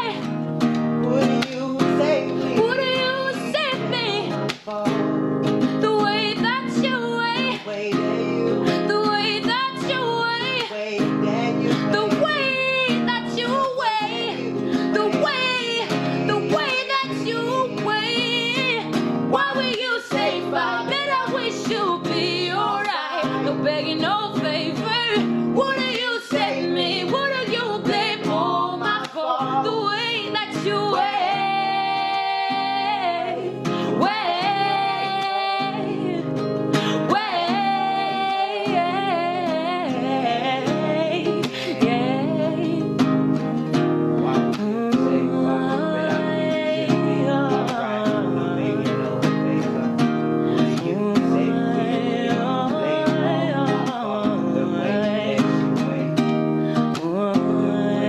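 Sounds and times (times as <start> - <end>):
person singing: 0.0 - 0.3, 1.0 - 58.0
acoustic guitar strumming: 0.0 - 58.0.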